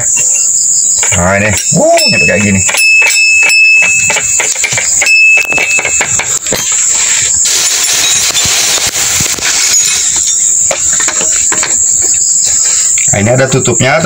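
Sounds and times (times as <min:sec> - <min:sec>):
high insect chorus: 0:00.0 - 0:14.0
hand tool clicking and knocking: 0:01.0 - 0:06.7
plastic bag rustling: 0:06.7 - 0:11.5.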